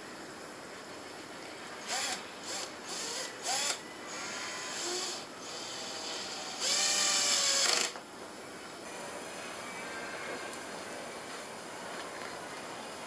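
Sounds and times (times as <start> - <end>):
drill driver whining: 1.8 - 8.0.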